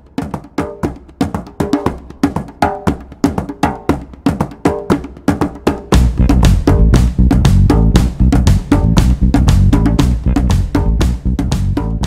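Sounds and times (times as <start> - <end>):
woodblock-like percussion beat: 0.0 - 12.0
heavy bass line: 6.0 - 12.0.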